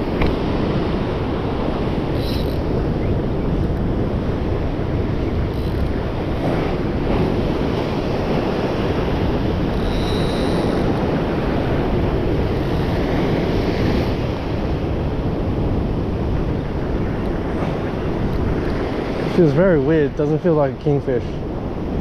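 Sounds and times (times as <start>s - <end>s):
surf washing against rocks: 0.0s - 22.0s
wind buffeting microphone: 0.0s - 22.0s.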